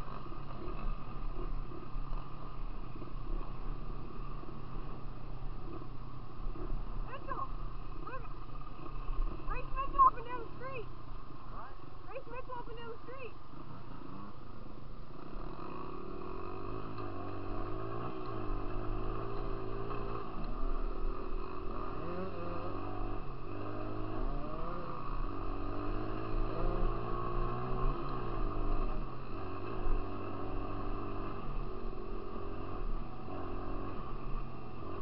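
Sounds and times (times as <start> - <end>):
dirt bike engine revving: 15.1 - 35.0.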